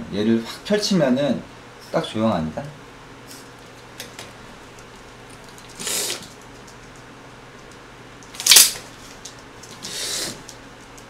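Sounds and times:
hand fan snapping open: 8.2s - 9.4s.

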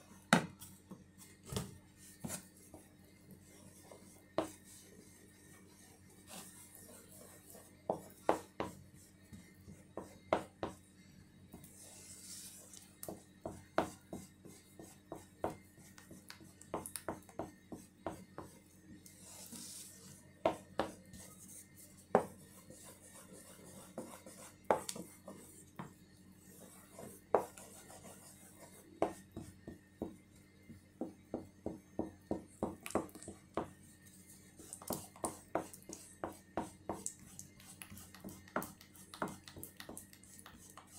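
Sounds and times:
utensil stirring batter in bowl: 32.6s - 40.9s.

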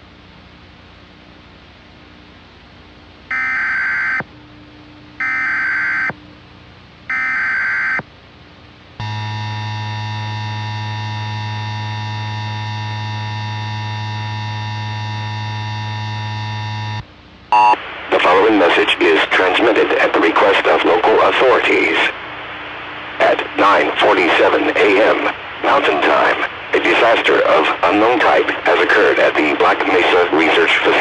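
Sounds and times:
harsh attention tone: 9.0s - 17.0s.

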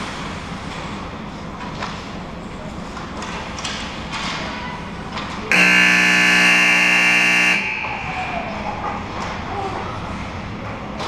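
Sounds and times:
harsh scoreboard buzzer: 5.5s - 8.1s.

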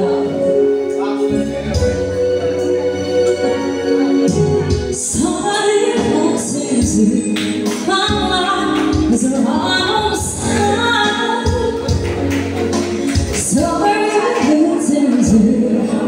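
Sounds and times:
woman singing into a microphone: 0.0s - 0.8s, 4.3s - 12.3s, 13.1s - 16.0s
accompanying music: 0.0s - 16.0s.

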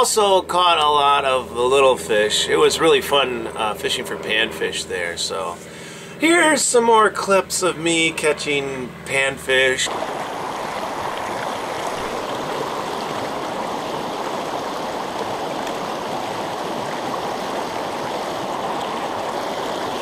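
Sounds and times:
water rushing over rocks: 9.9s - 20.0s.

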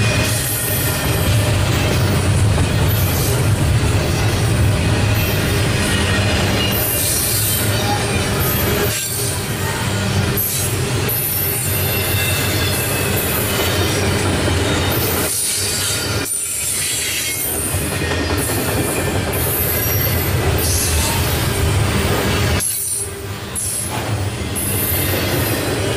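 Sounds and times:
steel wheels rumbling on rail: 0.0s - 25.9s
high-pitched wheel squeal: 5.1s - 17.5s.

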